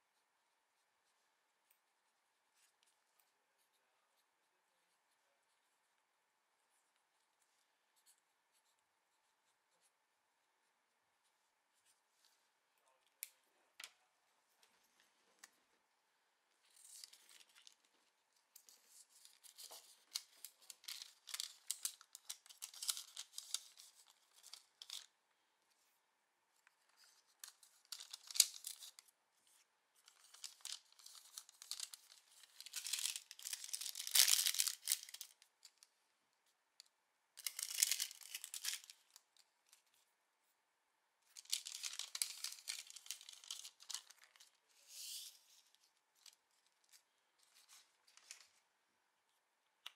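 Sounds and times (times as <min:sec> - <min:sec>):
paper rustling and crinkling: 0:16.6 - 0:25.1, 0:26.6 - 0:35.8, 0:37.4 - 0:40.0, 0:41.3 - 0:48.6.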